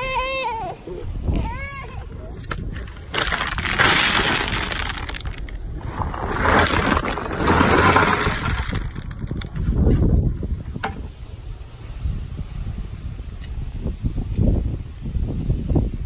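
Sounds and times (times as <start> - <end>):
walnuts clattering together: 2.5 - 5.6.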